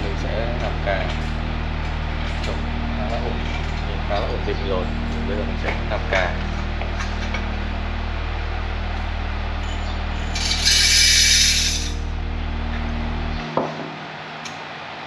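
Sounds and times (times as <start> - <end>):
machine hum: 0.0 - 15.0
coffee beans rattling into roaster: 10.4 - 11.9.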